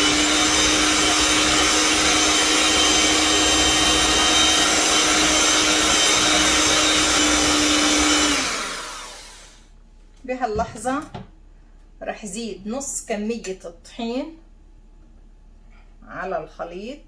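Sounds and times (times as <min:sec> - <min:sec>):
electric hand mixer running: 0:00.0 - 0:09.6.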